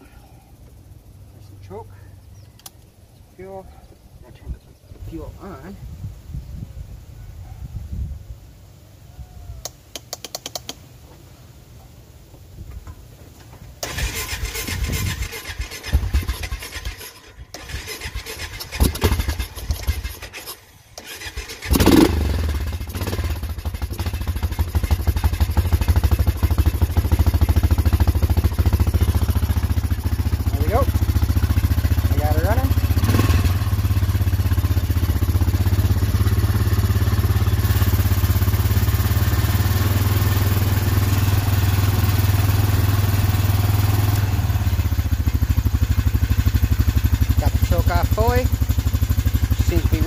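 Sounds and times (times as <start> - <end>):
engine cranking then idling: 13.8 - 50.0.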